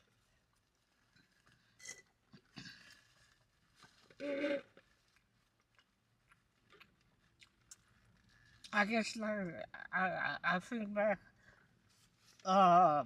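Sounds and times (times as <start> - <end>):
chewing: 1.0 - 8.7.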